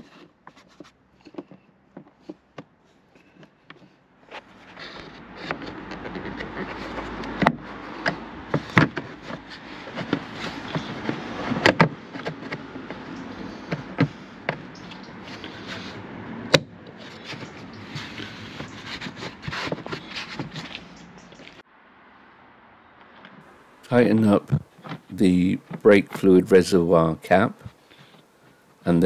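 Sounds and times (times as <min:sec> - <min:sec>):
rustling and scraping: 0:00.0 - 0:21.6, 0:23.0 - 0:26.8, 0:27.4 - 0:29.0
plastic clicks and knocks: 0:07.2 - 0:15.2.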